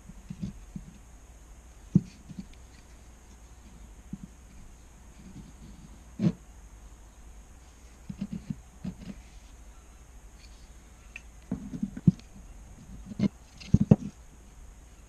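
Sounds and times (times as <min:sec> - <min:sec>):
wooden toy parts tapping: 0:13.1 - 0:14.2.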